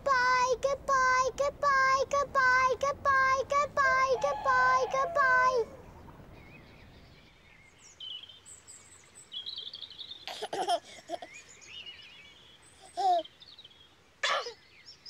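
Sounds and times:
small birds chirping: 0:00.0 - 0:15.0
baby giggling: 0:10.3 - 0:11.4, 0:12.8 - 0:13.2.

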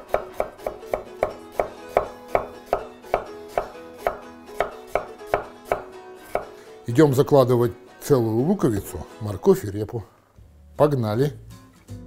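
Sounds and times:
knife chopping on wooden board: 0:00.0 - 0:06.6.

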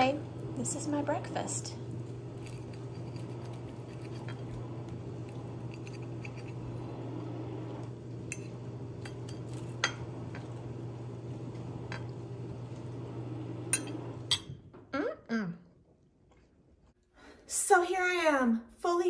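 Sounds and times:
low hum: 0:00.0 - 0:15.7
fork scraping ceramic plate: 0:02.4 - 0:04.6, 0:05.3 - 0:06.7.

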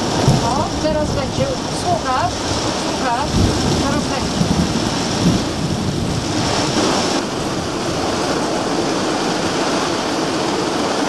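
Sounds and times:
heavy rain downpour: 0:00.0 - 0:11.0.

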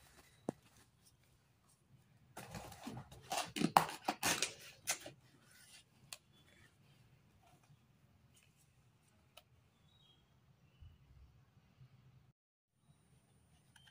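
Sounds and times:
cardboard scraping and rustling: 0:02.4 - 0:05.1.

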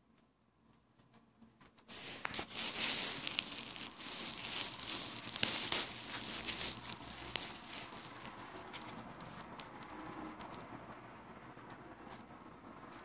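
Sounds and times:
rustling and scraping on carpet: 0:01.9 - 0:10.7.

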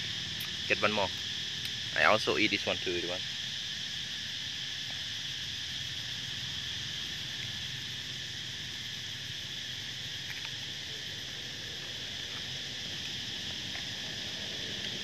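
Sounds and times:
insect chorus drone: 0:00.0 - 0:15.0.

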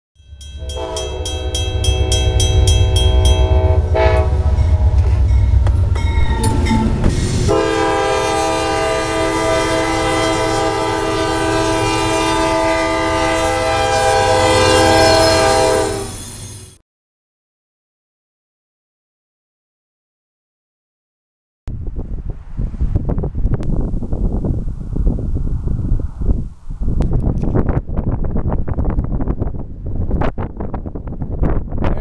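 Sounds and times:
crossing bell dinging: 0:00.2 - 0:07.1
locomotive engine rumble: 0:00.4 - 0:16.7
locomotive air horn blasts: 0:00.6 - 0:05.6, 0:06.4 - 0:16.2.

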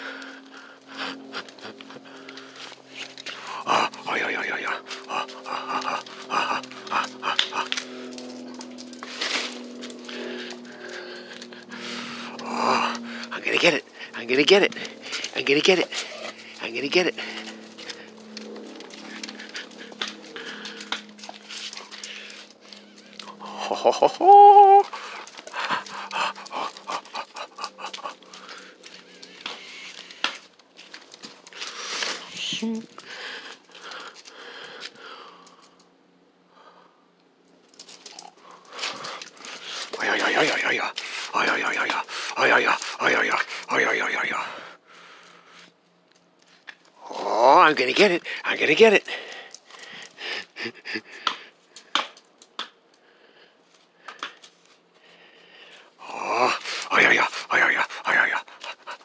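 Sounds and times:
dog panting: 0:00.0 - 0:08.8, 0:09.6 - 0:23.8, 0:24.8 - 0:30.4, 0:38.1 - 0:44.6, 0:47.8 - 0:51.4, 0:56.4 - 0:59.0.

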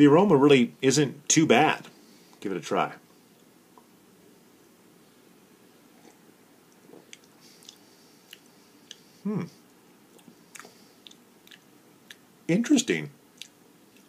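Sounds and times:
lip smacks and tongue clicks: 0:06.7 - 0:09.0, 0:10.1 - 0:12.2, 0:13.4 - 0:14.0
throat sound: 0:09.2 - 0:09.6.

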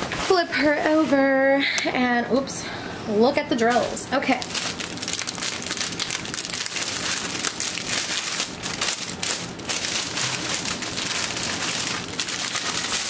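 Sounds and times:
plastic bags crinkling: 0:03.6 - 0:13.0.

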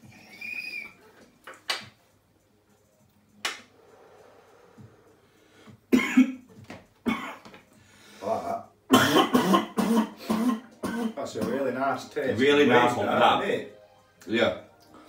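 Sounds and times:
man coughing harshly: 0:05.9 - 0:06.4, 0:07.1 - 0:07.4, 0:08.9 - 0:11.8.

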